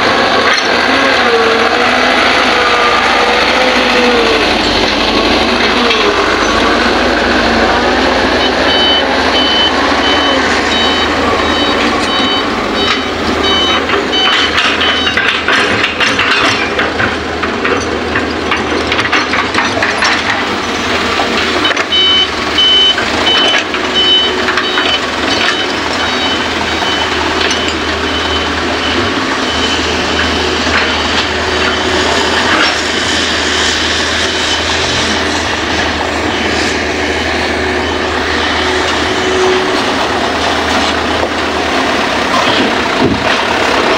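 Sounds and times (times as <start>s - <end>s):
excavator diesel engine running: 0.0s - 43.9s
high pulsing warning beeper: 7.4s - 15.2s, 21.6s - 32.2s, 34.1s - 35.4s, 36.2s - 39.8s.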